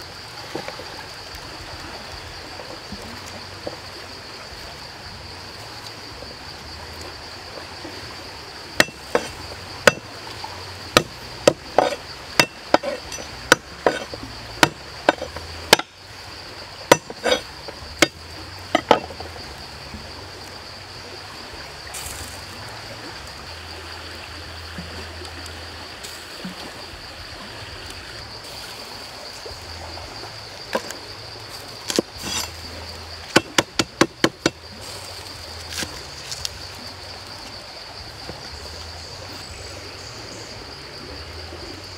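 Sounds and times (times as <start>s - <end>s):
high insect drone: 0.0s - 41.9s
cleaver chopping on cutting board: 16.9s - 17.4s.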